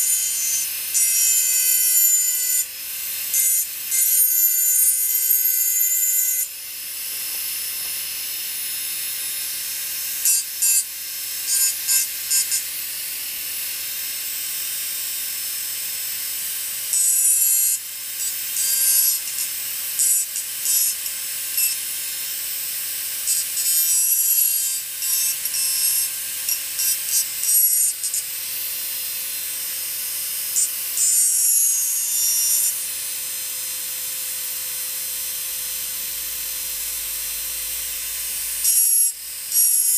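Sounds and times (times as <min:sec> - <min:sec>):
engraving tool scratching glass: 0:00.0 - 0:02.6, 0:10.2 - 0:12.7, 0:16.9 - 0:21.9, 0:23.2 - 0:28.6, 0:30.6 - 0:32.8, 0:38.6 - 0:39.9.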